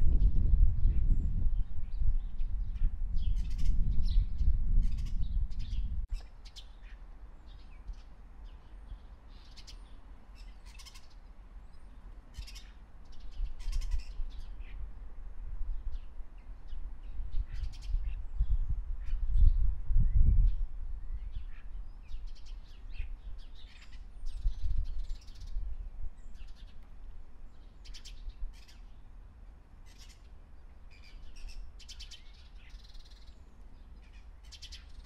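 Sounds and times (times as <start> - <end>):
wind rumbling on microphone: 0.0 - 10.0, 11.6 - 29.2.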